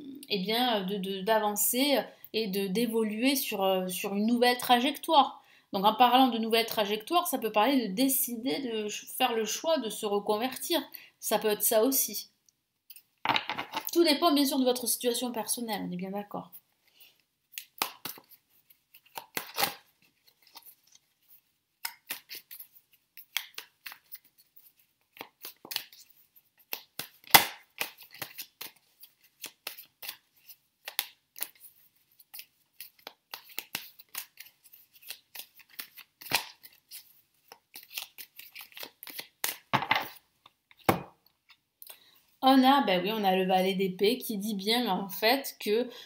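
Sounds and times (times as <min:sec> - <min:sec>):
cards being shuffled: 0:16.9 - 0:41.6.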